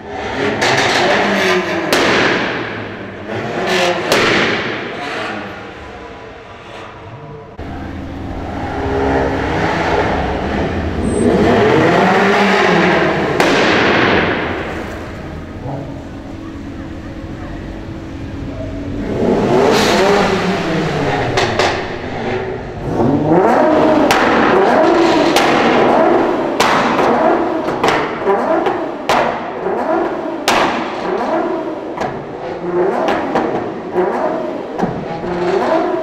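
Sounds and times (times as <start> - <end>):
car engine revving: 0.0 - 36.0
exhaust pops and bangs: 0.6 - 3.0, 4.0 - 5.0, 13.1 - 15.6, 22.8 - 31.4.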